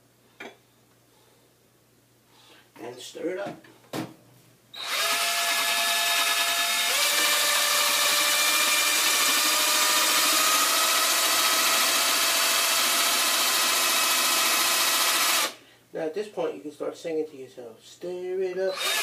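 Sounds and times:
power drill motor whine: 0:04.8 - 0:15.6, 0:18.7 - 0:19.0.

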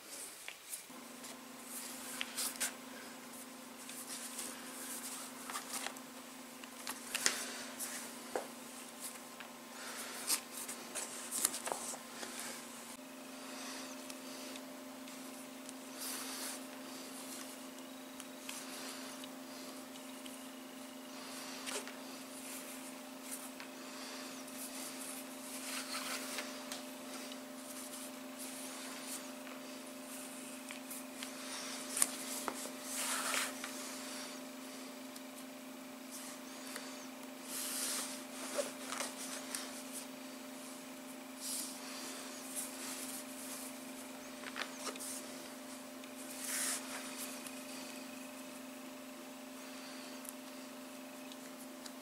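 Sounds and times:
cord rustling and rubbing: 0:00.0 - 0:06.0, 0:06.6 - 0:13.0, 0:21.1 - 0:34.2, 0:41.4 - 0:47.8
low electrical hum: 0:00.0 - 0:52.0.

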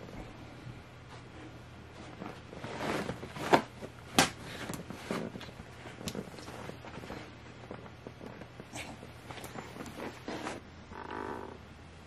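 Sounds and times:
dog rustling bedding: 0:01.0 - 0:10.6.

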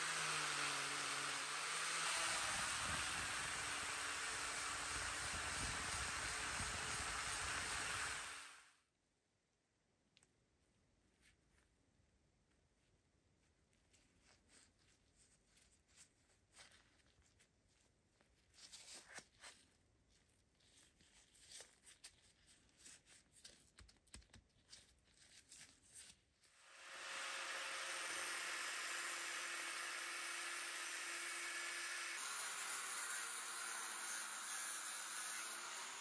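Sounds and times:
cut-off wheel cutting steel: 0:00.0 - 0:08.7, 0:26.6 - 0:36.0
gloved hands rubbing and clicking: 0:12.4 - 0:26.5.

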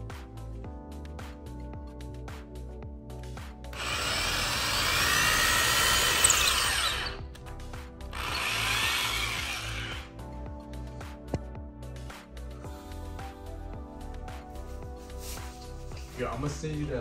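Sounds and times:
background music: 0:00.0 - 0:17.0
power tool running: 0:03.8 - 0:07.2, 0:08.1 - 0:10.2.

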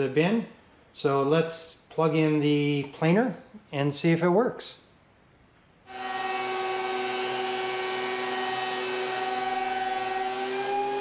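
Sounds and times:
thickness planer whining: 0:05.9 - 0:11.0.

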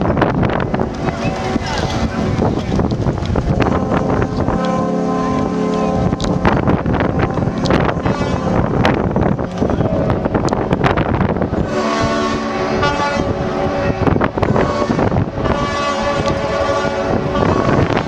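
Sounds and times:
yacht horns sounding together: 0:03.5 - 0:10.4, 0:11.5 - 0:18.0.

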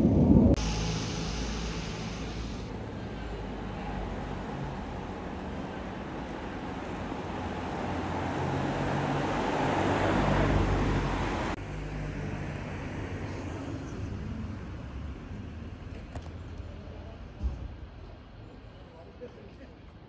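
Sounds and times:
vehicle passing with engine hum: 0:00.0 - 0:16.6
outdoor rumble: 0:00.0 - 0:18.6.

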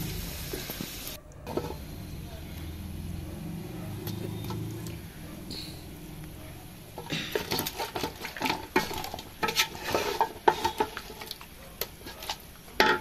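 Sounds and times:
meat sizzling: 0:00.0 - 0:03.0, 0:05.8 - 0:13.0
spatula scraping a metal pot: 0:01.5 - 0:01.8, 0:06.9 - 0:13.0.

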